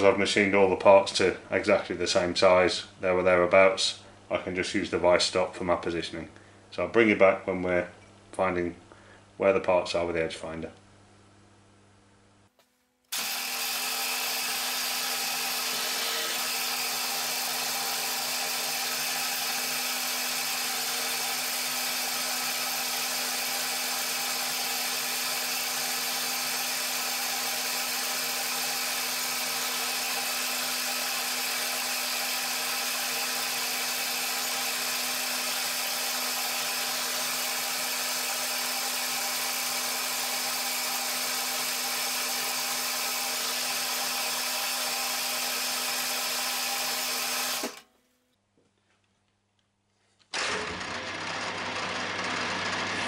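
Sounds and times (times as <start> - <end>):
milling machine motor hum: 13.1 - 47.8, 50.4 - 53.0
milling machine whine: 13.1 - 47.8, 50.4 - 53.0.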